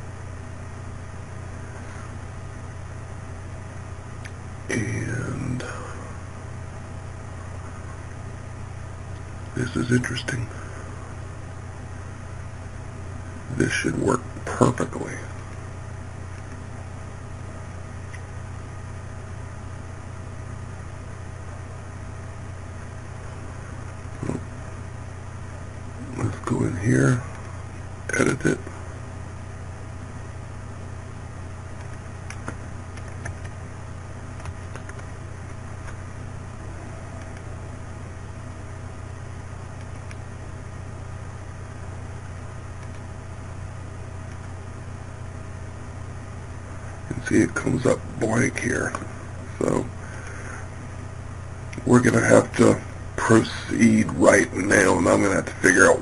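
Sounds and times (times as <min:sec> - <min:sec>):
low hum with hiss: 0:00.0 - 0:56.0
faint mouse clicks: 0:34.4 - 0:36.0, 0:37.2 - 0:37.5, 0:39.8 - 0:40.2, 0:42.2 - 0:43.1, 0:44.2 - 0:44.6
faint click: 0:37.2 - 0:37.5, 0:42.2 - 0:43.0.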